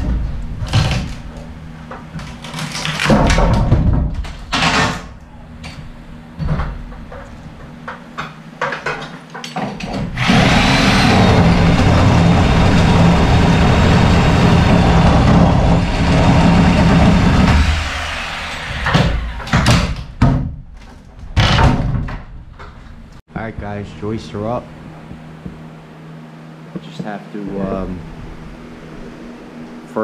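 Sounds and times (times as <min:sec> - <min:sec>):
sharp knocks: 0:09.7 - 0:20.6
handheld power tool running: 0:10.2 - 0:19.7.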